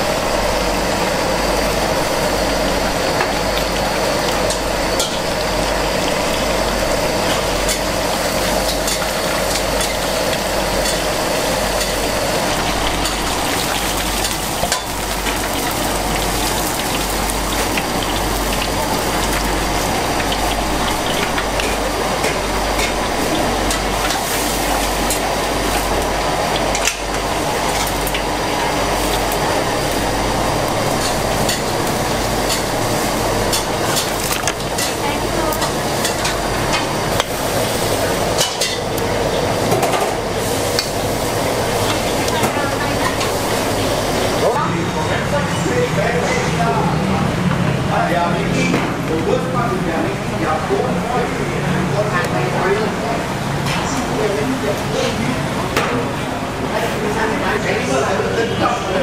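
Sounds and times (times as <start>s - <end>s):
fish sizzling in hot oil: 0.0s - 44.6s.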